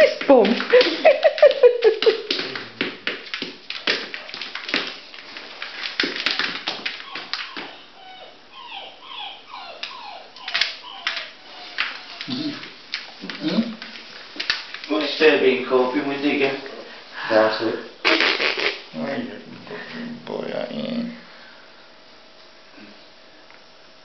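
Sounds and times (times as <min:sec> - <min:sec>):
dog claws clicking on tiles: 0:00.0 - 0:07.8, 0:09.8 - 0:15.1
puppy whimpering: 0:06.9 - 0:12.7.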